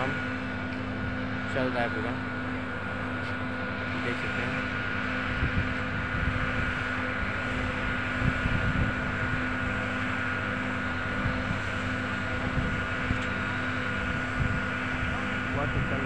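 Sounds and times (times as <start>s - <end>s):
diesel engine droning: 0.0s - 16.0s
wind on microphone: 3.8s - 16.0s.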